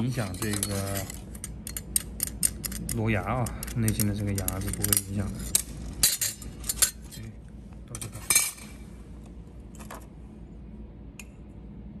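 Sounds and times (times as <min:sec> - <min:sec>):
metal parts clinking on workbench: 0:00.1 - 0:02.9, 0:03.7 - 0:07.2, 0:08.0 - 0:08.7.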